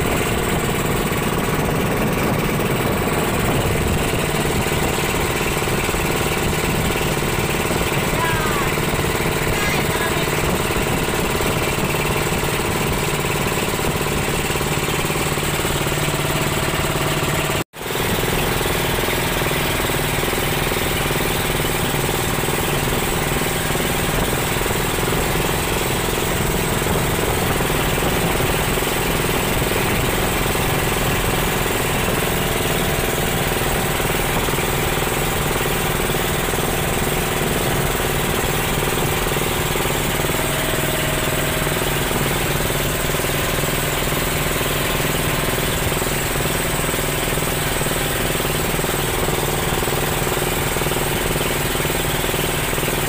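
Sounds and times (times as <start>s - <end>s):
boat engine running: 0.0s - 53.0s
water rushing past hull: 0.0s - 53.0s
wind: 0.0s - 53.0s.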